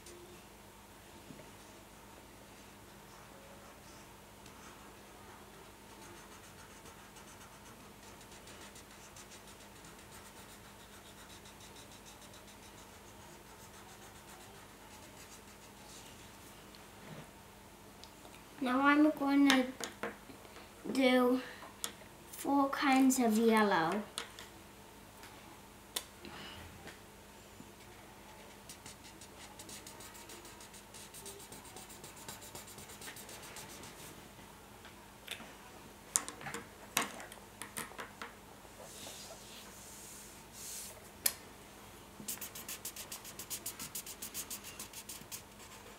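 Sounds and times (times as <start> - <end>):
marker scribbling on paper: 6.0 - 16.0, 28.4 - 34.1, 42.3 - 45.9.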